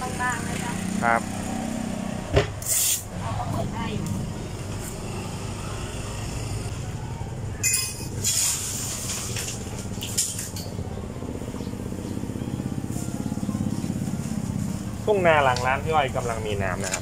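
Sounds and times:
vehicle engine idling: 3.3 - 17.0
sharp clinks of dishes: 7.6 - 8.2.

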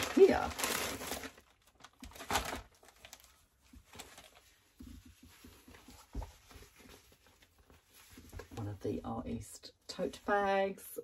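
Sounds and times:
packaging rustling: 0.0 - 8.6.

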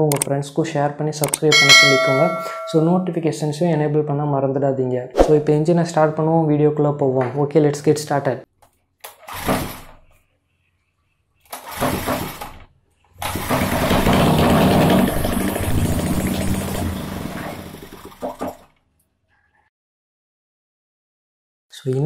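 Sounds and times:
small engine running: 13.3 - 18.3.

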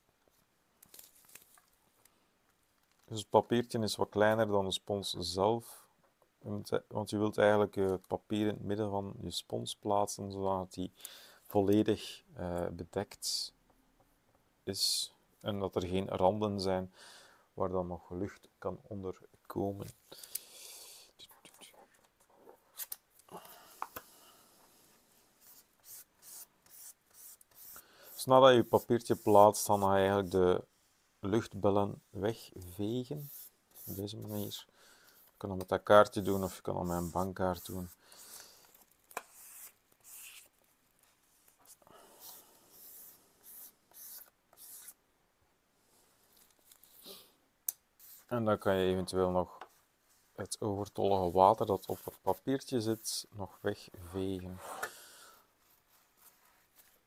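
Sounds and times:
paper rustling: 0.8 - 1.8.

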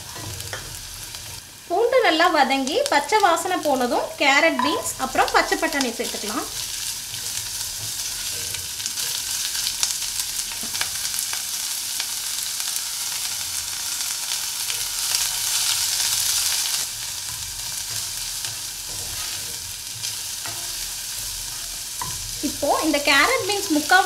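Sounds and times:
vegetables sizzling in hot oil: 0.0 - 24.0
spatula scraping and tapping pan: 0.1 - 1.4, 6.6 - 9.7, 17.2 - 22.4.

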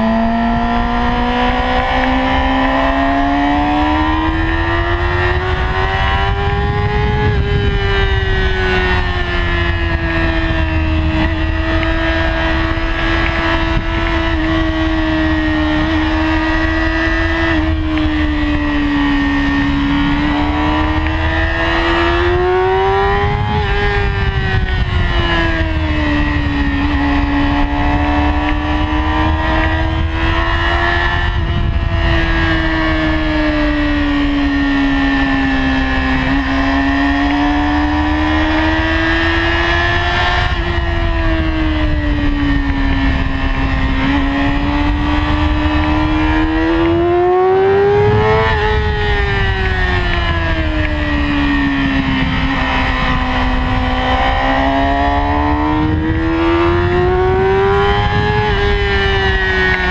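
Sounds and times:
motorcycle engine running hard: 0.0 - 59.9
steady low rush: 38.9 - 59.9.

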